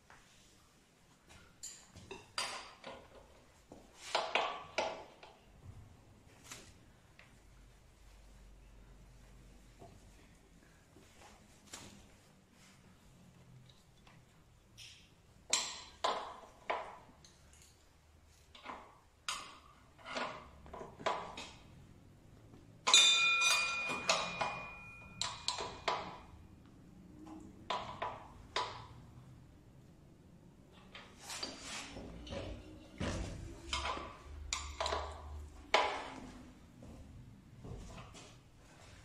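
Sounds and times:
ringing metal ping: 0:22.9 - 0:25.6.

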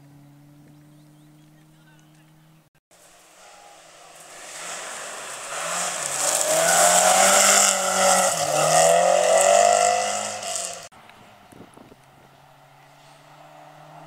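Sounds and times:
rally car engine high-revving: 0:00.0 - 0:14.0
gravel spraying from tyres: 0:03.0 - 0:14.0.

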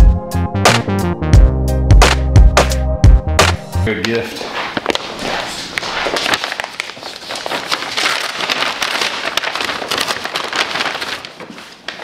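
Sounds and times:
paper bag crinkling and rustling: 0:04.4 - 0:12.0.

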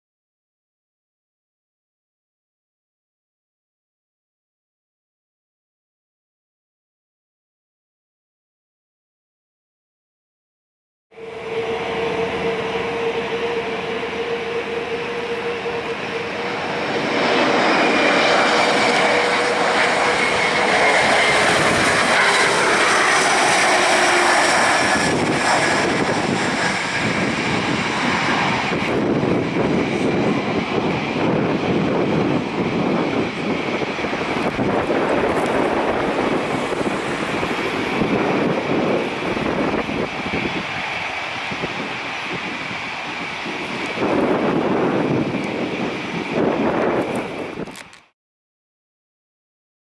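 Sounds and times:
jet engine rush: 0:11.1 - 0:48.1
jet engines whining on approach: 0:11.1 - 0:48.1.

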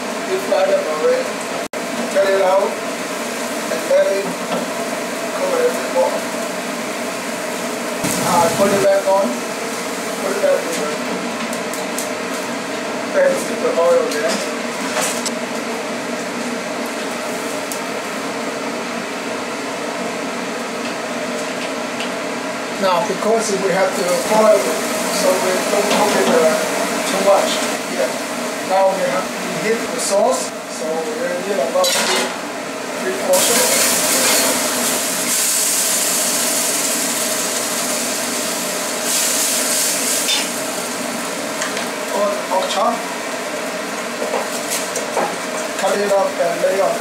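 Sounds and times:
food deep-frying in oil: 0:00.0 - 0:47.0
kitchen equipment hiss and hum: 0:00.0 - 0:47.0.

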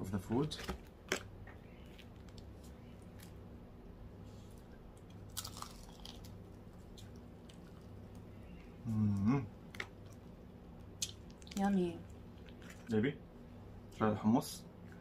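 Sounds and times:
chewing: 0:04.5 - 0:08.7, 0:11.0 - 0:12.9
crunch of biting fried chicken: 0:05.3 - 0:07.8
low humming voice: 0:08.5 - 0:09.5.

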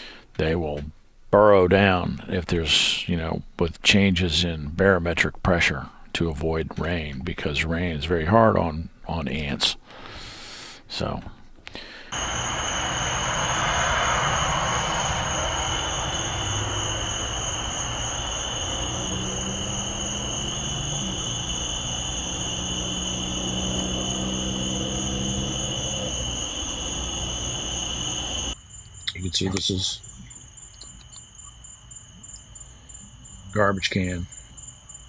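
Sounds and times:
insects shrill chorus: 0:12.1 - 0:35.0
low droning hum: 0:12.2 - 0:28.6.

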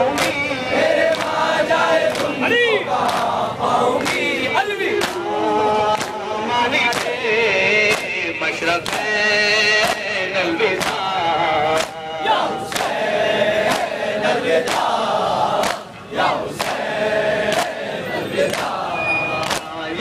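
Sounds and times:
men chanting in chorus: 0:00.0 - 0:20.0.

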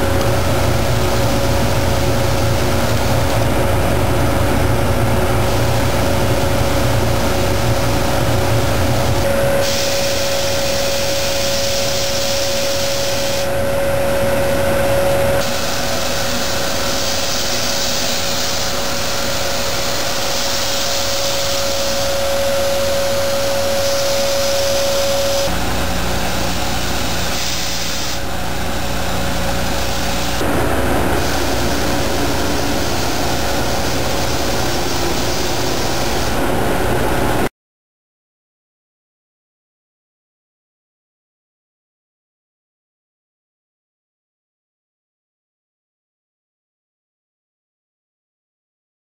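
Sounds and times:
grinding machine whirring: 0:00.0 - 0:37.5.

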